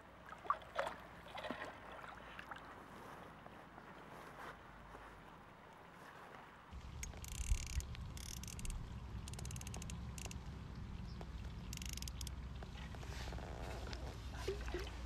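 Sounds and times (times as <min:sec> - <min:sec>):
rapid high-pitched clicking: 0:06.8 - 0:10.5, 0:11.6 - 0:12.4.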